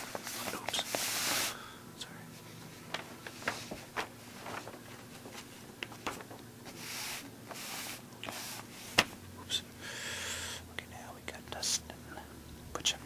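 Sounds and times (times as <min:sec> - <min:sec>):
newspaper rustling: 0:00.0 - 0:01.6, 0:02.7 - 0:09.2.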